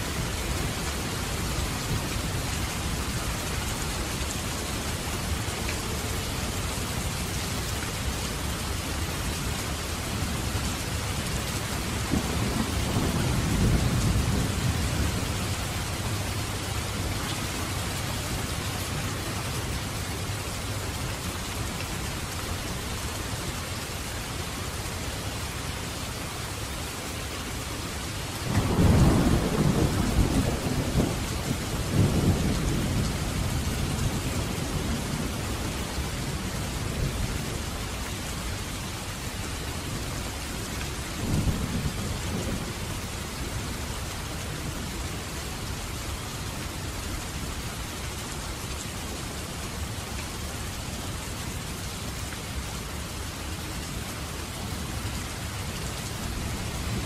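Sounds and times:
steady rain: 0.0 - 57.0
thunder rumbling: 11.8 - 16.4, 28.5 - 37.2.

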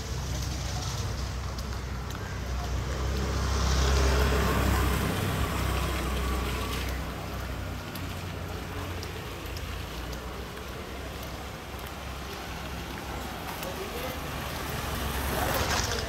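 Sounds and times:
street ambience: 0.0 - 16.0
vehicle driving past: 2.5 - 8.3.

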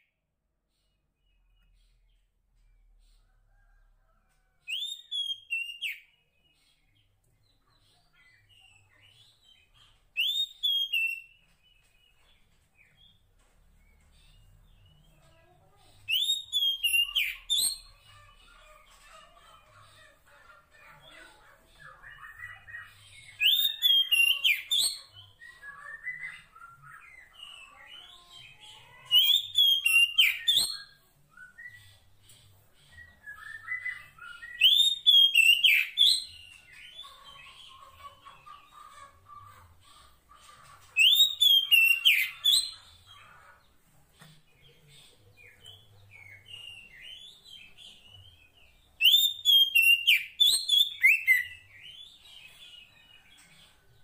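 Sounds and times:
bird whistled song phrases: 4.7 - 6.1, 10.2 - 11.3, 16.1 - 17.9, 33.2 - 36.1, 49.0 - 51.6.

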